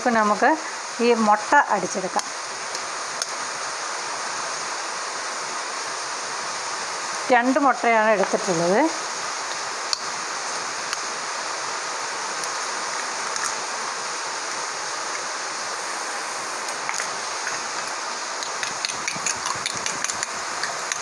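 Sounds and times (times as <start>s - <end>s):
steady hiss: 0.0s - 21.0s
spoon beating eggs in glass bowl: 18.4s - 21.0s.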